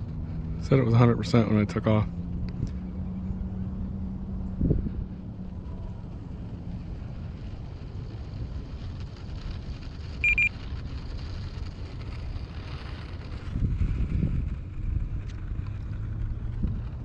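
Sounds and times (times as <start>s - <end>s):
wind buffeting microphone: 0.0s - 17.0s
short high electronic beep: 10.2s - 10.5s.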